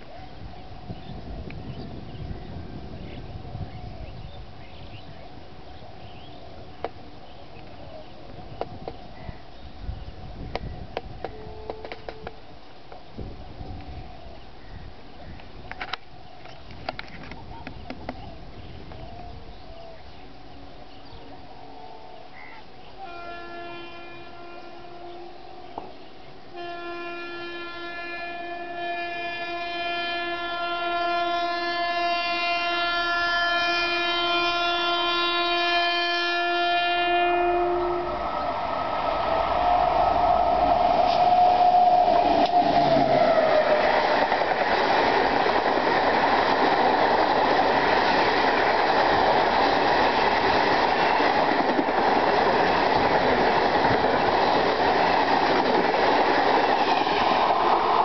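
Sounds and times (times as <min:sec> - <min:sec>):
train rumbling and clattering on rails: 0:00.6 - 0:22.0, 0:38.2 - 0:58.0
train horn blasts: 0:11.2 - 0:12.4, 0:23.0 - 0:25.9, 0:26.5 - 0:43.9.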